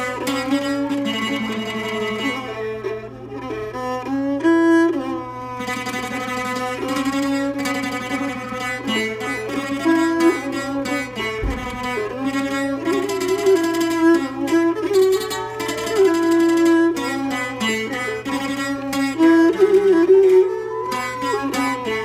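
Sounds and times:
plucked zither tremolo melody: 0.0 - 22.0
low thump: 11.2 - 12.2.

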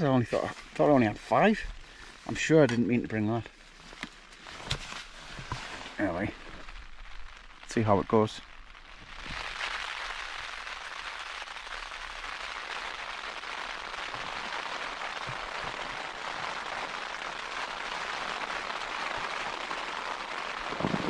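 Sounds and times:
rain pattering on a tent: 0.0 - 21.0.

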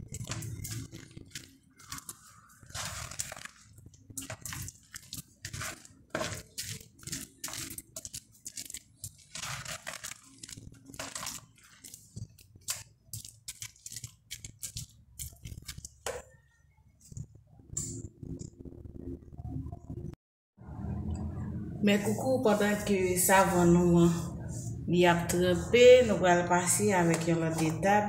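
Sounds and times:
wet kneading strokes: 0.0 - 18.7.

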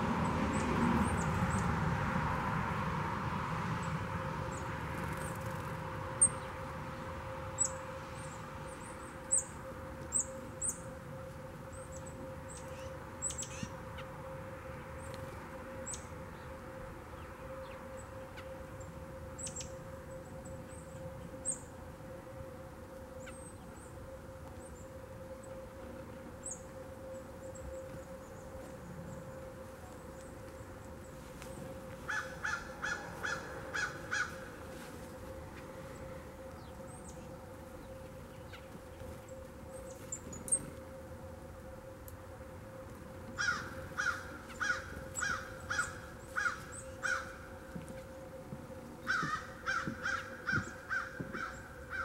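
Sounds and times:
faint steady hum: 0.0 - 52.0.

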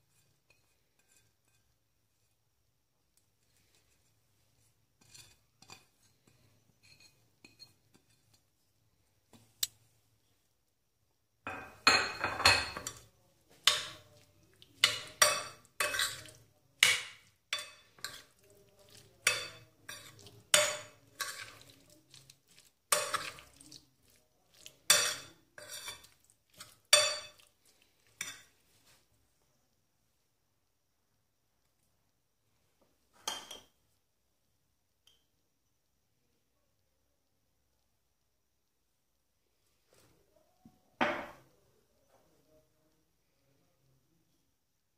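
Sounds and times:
metal spoon stirring in glass bowl: 0.1 - 1.8, 5.0 - 8.5, 11.8 - 28.6.

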